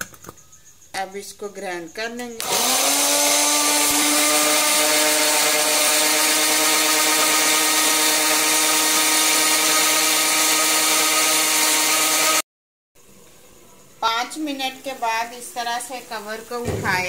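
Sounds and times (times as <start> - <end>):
mixer grinder motor whine: 2.4 - 12.4.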